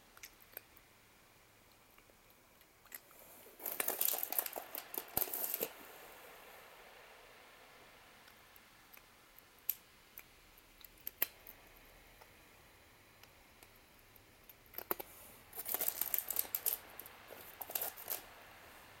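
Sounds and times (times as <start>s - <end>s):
cat crunching dry kibble: 2.8s - 6.0s, 14.6s - 18.4s.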